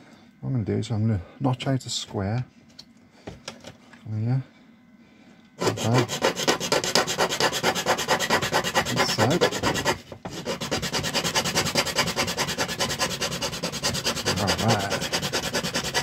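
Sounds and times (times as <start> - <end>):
file rasping on plastic: 5.6 - 16.0.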